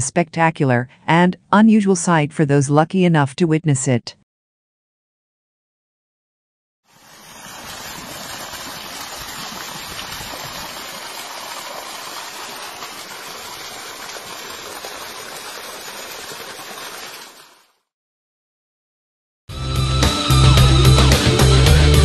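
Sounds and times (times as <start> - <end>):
water gushing and splashing: 6.9 - 17.8.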